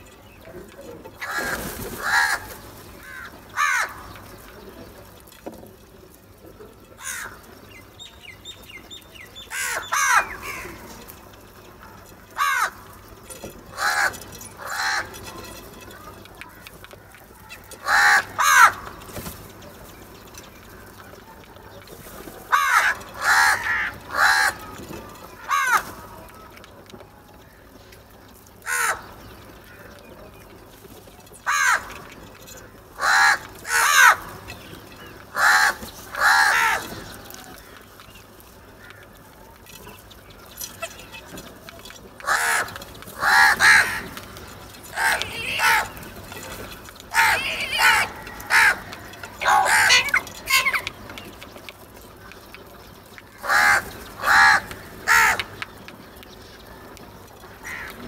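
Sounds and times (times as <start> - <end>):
crows cawing: 1.2 - 4.5, 7.0 - 7.6, 9.4 - 19.6, 22.4 - 26.7, 27.3 - 30.2, 31.3 - 41.5, 42.1 - 52.0, 53.2 - 55.8, 56.6 - 58.0.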